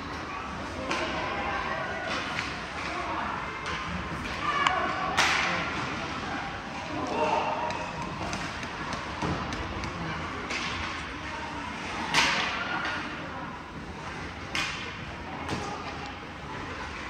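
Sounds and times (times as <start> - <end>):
sticks clacking on puck: 7.6 - 11.0.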